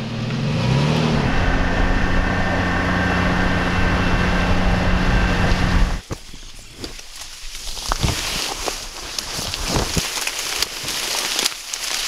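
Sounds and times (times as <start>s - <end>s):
engine revving and running: 0.0s - 6.0s.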